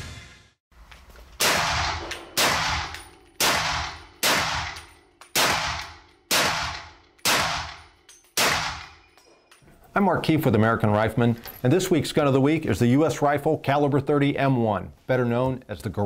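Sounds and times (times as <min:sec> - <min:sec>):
rifle shots echoing indoors: 0:01.4 - 0:09.1.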